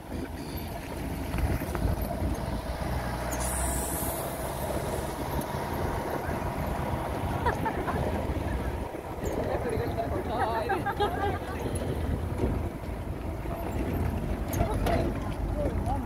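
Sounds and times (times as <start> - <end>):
vehicle engine rumbling: 0.0 - 16.0
brief hiss: 3.3 - 4.6.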